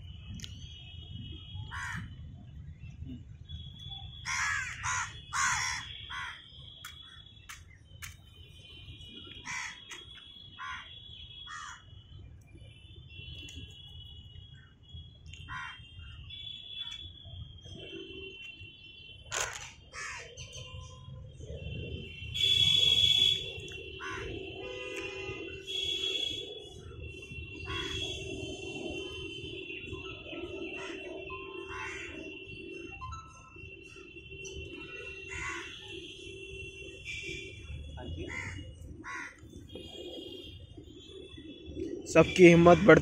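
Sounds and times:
crows cawing: 1.7s - 2.1s, 4.2s - 6.4s, 9.4s - 9.9s, 10.6s - 10.9s, 11.5s - 11.8s, 15.5s - 15.8s, 19.9s - 20.3s, 24.0s - 24.3s, 27.7s - 28.0s, 31.7s - 32.3s, 35.3s - 35.8s, 38.3s - 39.5s.

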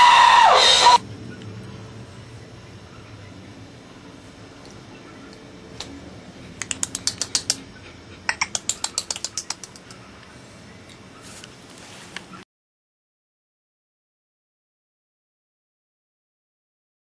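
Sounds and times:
low steady hum: 1.0s - 12.0s
sharp clicking taps: 6.6s - 10.0s.

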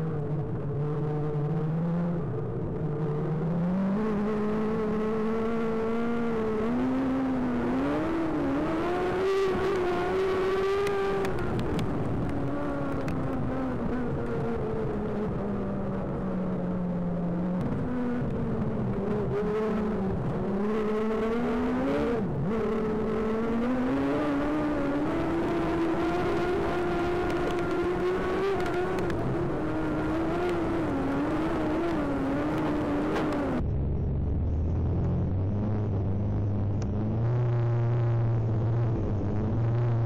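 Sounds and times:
race car engine revving: 0.0s - 40.0s
music with low throb: 33.6s - 38.9s.

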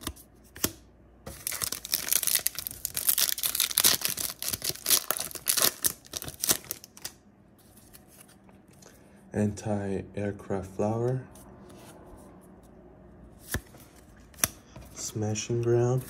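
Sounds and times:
foil wrapper tearing and crinkling: 1.3s - 7.1s.

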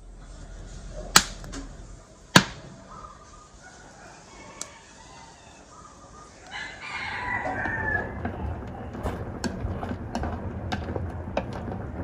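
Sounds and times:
rooster crowing: 3.0s - 8.9s.

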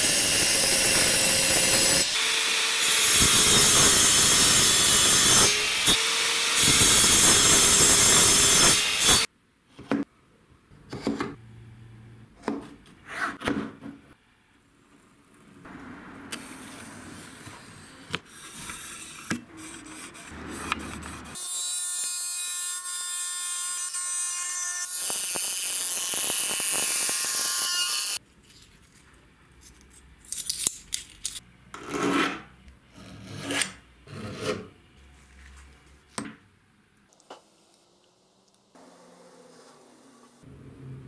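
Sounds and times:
angle grinder cutting metal: 0.0s - 9.3s, 21.3s - 28.2s.

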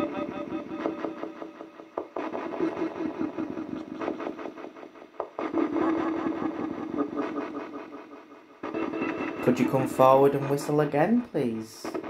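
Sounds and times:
choppy garbled device sound: 5.4s - 8.2s, 9.4s - 12.0s.

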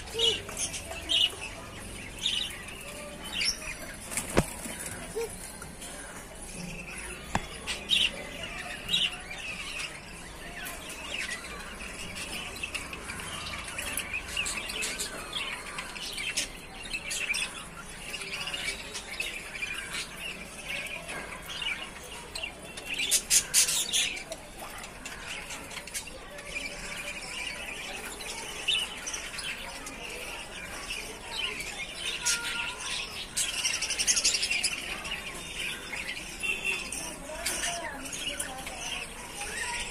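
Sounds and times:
budgerigars chattering: 0.0s - 39.9s.

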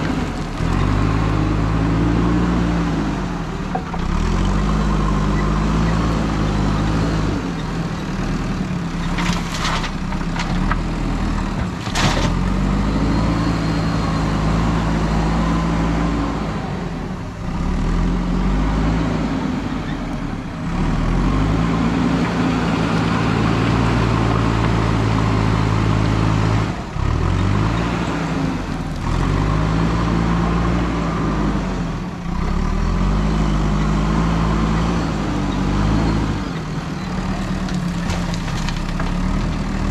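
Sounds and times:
diesel engine revving under load: 0.0s - 39.9s
bucket digging gravel: 9.1s - 10.7s.

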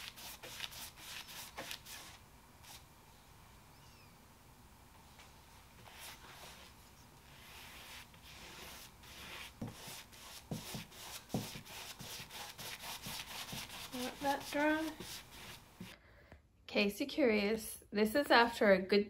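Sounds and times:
paintbrush stroking on wood: 5.8s - 15.9s.

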